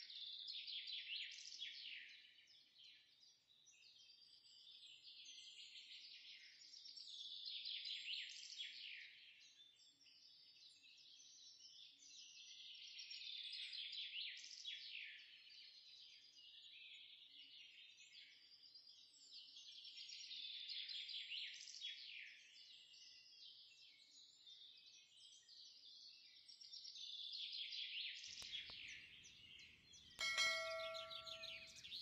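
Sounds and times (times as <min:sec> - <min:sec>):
bell chime: 0:30.2 - 0:32.0
birds chirping: 0:30.2 - 0:32.0.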